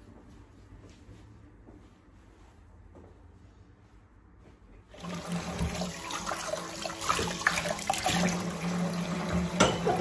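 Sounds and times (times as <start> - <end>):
tap running into a steel sink: 9.2 - 10.0
pans and dishes clinking: 9.3 - 10.0.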